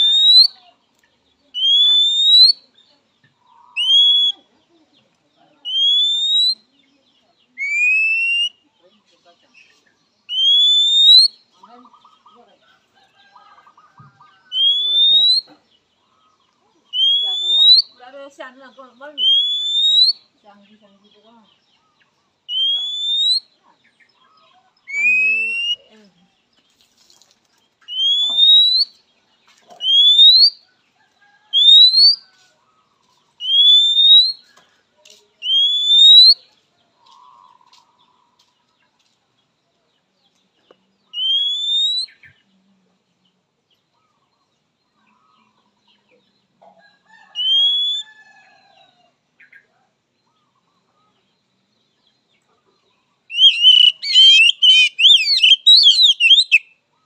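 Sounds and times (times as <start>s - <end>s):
bird giving rising whistles: 0.0s - 0.5s, 1.6s - 2.6s, 10.3s - 11.3s, 14.5s - 15.4s, 17.0s - 17.9s, 19.2s - 20.2s, 22.5s - 23.5s, 27.9s - 28.9s, 29.8s - 30.6s, 31.5s - 32.2s, 33.4s - 34.4s, 35.4s - 36.4s, 41.2s - 42.2s, 47.4s - 48.1s, 53.3s - 56.7s.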